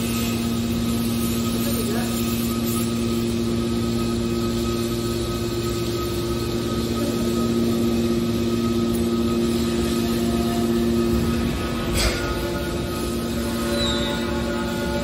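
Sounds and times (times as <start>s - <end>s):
high-pitched whine: 0.0s - 15.0s
hydraulic power unit humming: 0.0s - 15.0s.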